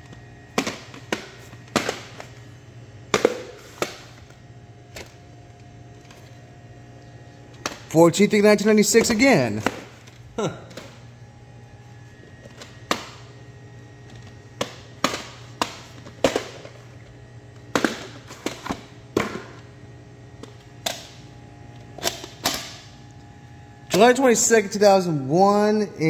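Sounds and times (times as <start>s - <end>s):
plastic cassettes clicking and knocking: 0.0s - 2.4s, 14.1s - 16.8s, 17.6s - 19.6s
low steady hum: 0.0s - 26.0s.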